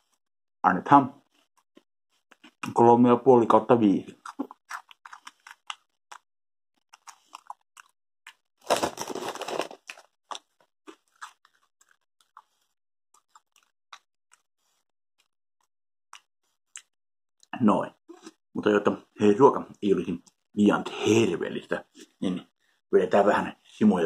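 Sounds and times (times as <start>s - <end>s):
person chewing crunchy snacks: 1.4s - 2.8s, 4.1s - 14.9s.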